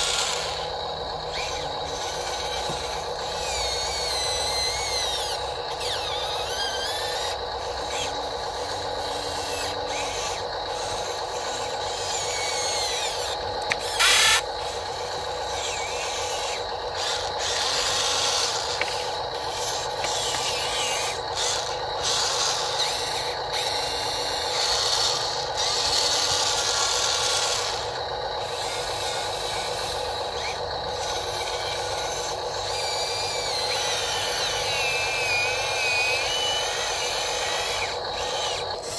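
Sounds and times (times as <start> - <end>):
electric motors humming and whining: 0.0 - 38.9
short loud rasping burst: 13.8 - 14.5.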